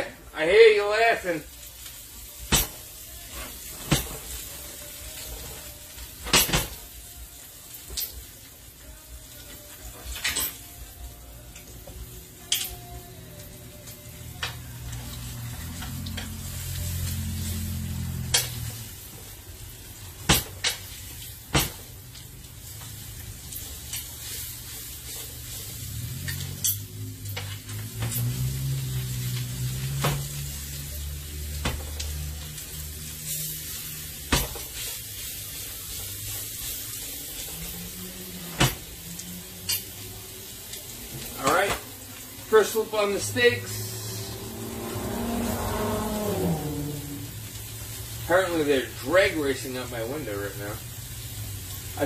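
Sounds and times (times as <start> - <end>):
steaks sizzling in a pan: 1.3 - 52.0
cars revving: 11.9 - 52.0.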